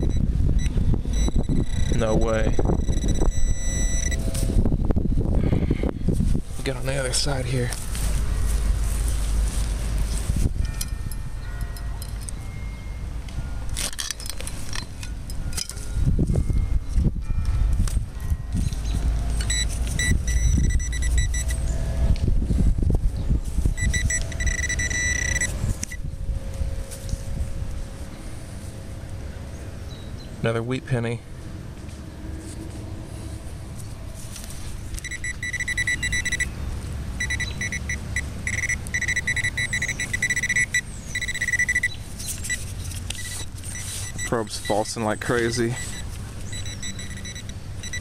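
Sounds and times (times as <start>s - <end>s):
high-pitched probe beeping: 0.0s - 4.6s, 18.2s - 21.8s, 23.7s - 26.0s, 35.0s - 36.6s, 37.2s - 48.0s
pinpointer high alert tone: 0.0s - 4.6s, 19.4s - 21.8s, 23.7s - 26.0s, 35.0s - 48.0s.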